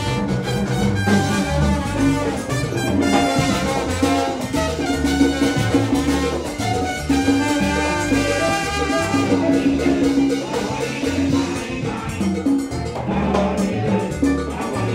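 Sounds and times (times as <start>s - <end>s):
salsa band playing: 0.0s - 14.9s.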